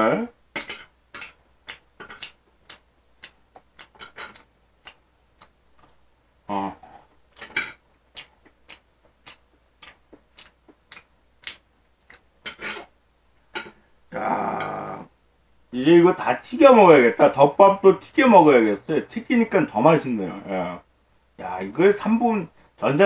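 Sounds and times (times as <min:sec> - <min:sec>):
person chewing food: 0:00.5 - 0:06.0, 0:06.8 - 0:12.9
low mouth sound: 0:00.6 - 0:05.6, 0:06.4 - 0:12.9.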